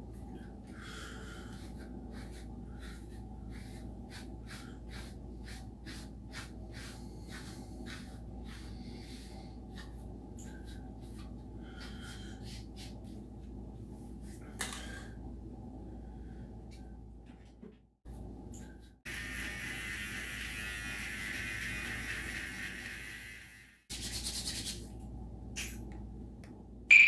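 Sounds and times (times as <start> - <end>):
steady low hum: 0.0 - 19.0
brush scratching through wet hair: 1.6 - 10.0.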